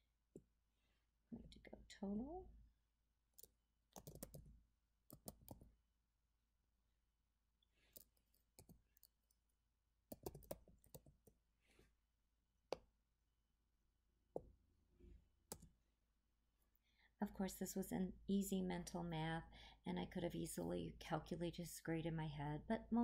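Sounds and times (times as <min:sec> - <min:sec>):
keyboard typing: 0:03.4 - 0:04.5, 0:05.1 - 0:05.6, 0:08.0 - 0:09.1, 0:10.1 - 0:11.3.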